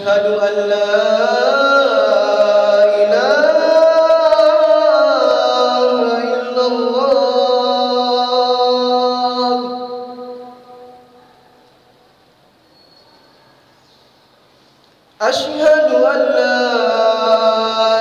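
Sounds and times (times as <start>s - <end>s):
man chanting call to prayer: 0.0s - 11.2s, 15.2s - 18.0s.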